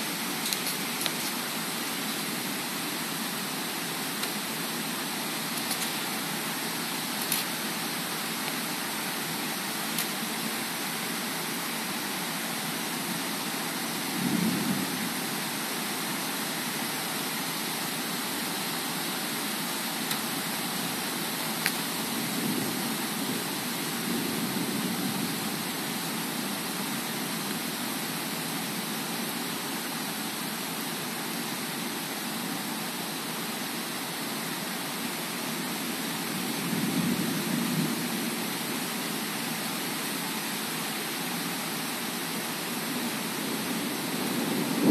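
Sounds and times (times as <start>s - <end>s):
heavy rain falling: 0.0s - 44.9s
wind gusts: 13.8s - 15.9s, 19.9s - 29.6s, 36.2s - 44.9s.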